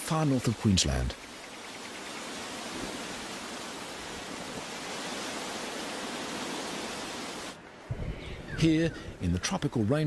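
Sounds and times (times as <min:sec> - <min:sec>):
falling water hiss: 0:00.0 - 0:09.4.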